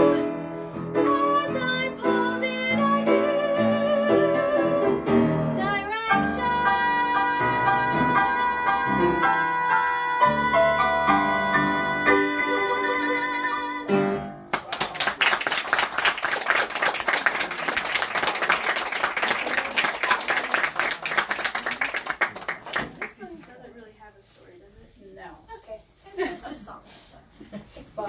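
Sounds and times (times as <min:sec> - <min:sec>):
person singing with vibrato: 0:00.0 - 0:14.2
audience applauding: 0:14.5 - 0:23.2.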